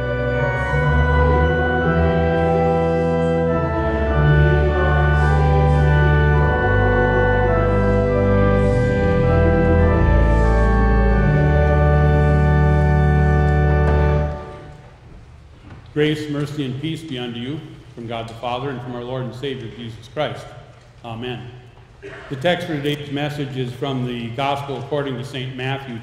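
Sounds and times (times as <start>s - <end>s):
organ chords: 0.0s - 20.4s.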